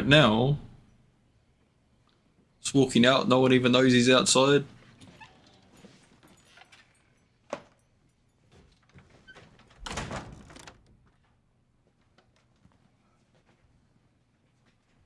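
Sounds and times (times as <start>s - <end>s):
door moving: 8.5s - 11.4s.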